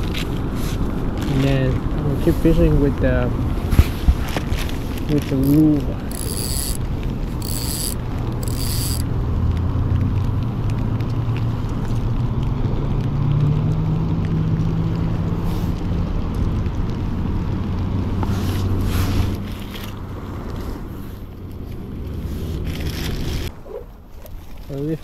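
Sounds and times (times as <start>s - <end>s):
wind on microphone: 0.0s - 8.7s
high-pitched rasping bursts: 5.4s - 9.0s.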